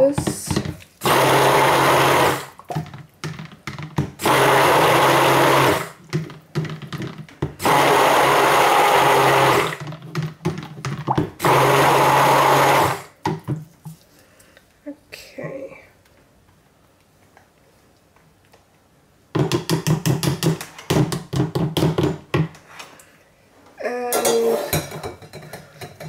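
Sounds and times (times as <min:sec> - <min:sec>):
immersion blender motor whine: 0:01.0 - 0:02.5, 0:04.2 - 0:06.0, 0:07.6 - 0:09.8, 0:11.4 - 0:13.0.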